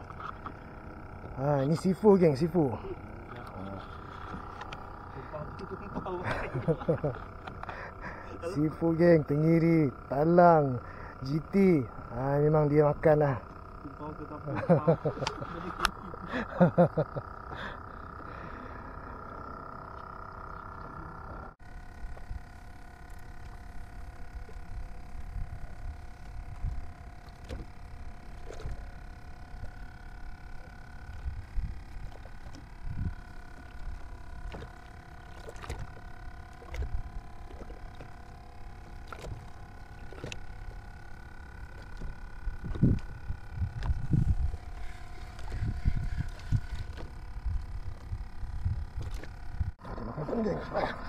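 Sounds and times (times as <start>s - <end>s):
faint steady hum: 0.0s - 51.0s
wind rumble on microphone: 31.2s - 33.2s, 42.5s - 49.8s.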